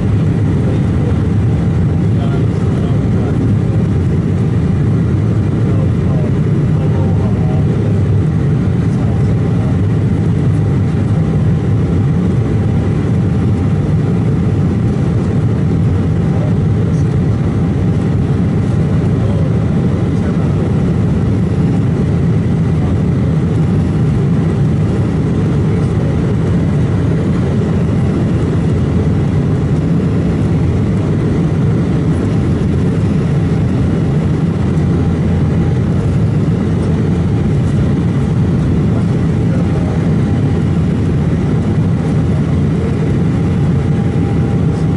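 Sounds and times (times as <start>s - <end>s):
faint steady whines: 0.0s - 44.9s
jet engine drone: 0.0s - 44.9s
rushing airflow: 0.0s - 44.9s.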